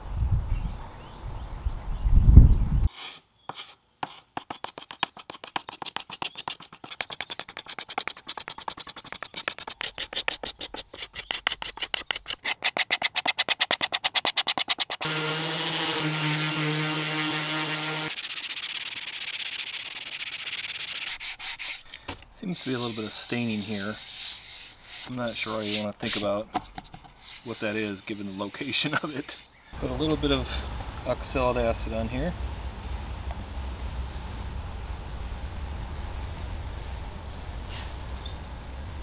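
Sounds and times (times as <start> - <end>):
hand scraper on wood: 2.9 - 29.5
sanding block rubbing wood: 2.9 - 29.5.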